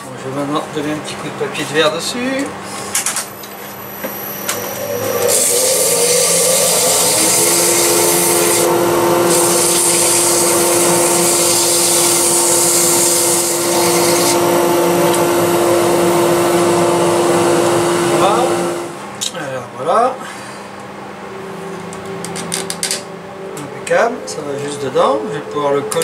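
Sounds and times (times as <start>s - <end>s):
wood lathe running: 3.8s - 19.0s.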